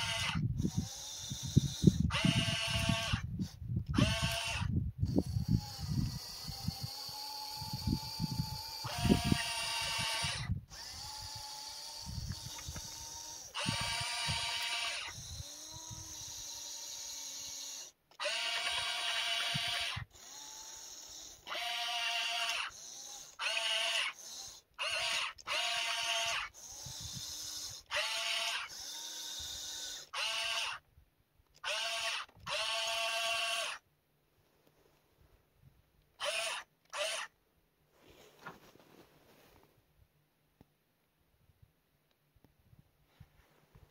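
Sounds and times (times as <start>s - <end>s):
electric motors whining: 0.0s - 30.8s, 31.6s - 33.8s, 36.2s - 37.3s.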